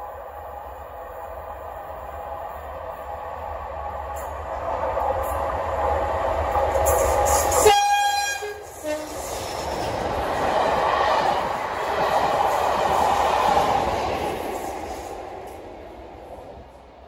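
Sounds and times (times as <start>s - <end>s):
diesel locomotive engine: 0.0s - 17.0s
two-tone horn blast: 7.6s - 9.2s.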